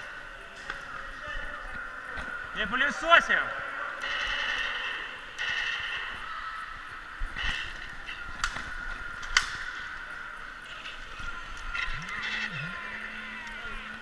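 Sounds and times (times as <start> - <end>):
faint electronic tones: 0.0 - 14.0
sharp clicks: 7.4 - 9.8, 10.8 - 14.0
rising electronic tone: 11.5 - 14.0.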